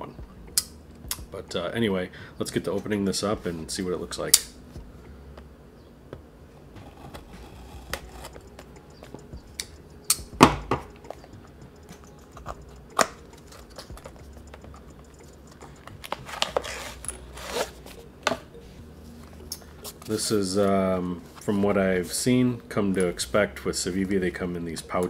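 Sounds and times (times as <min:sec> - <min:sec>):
fingers working cardboard flap: 0:06.7 - 0:08.3.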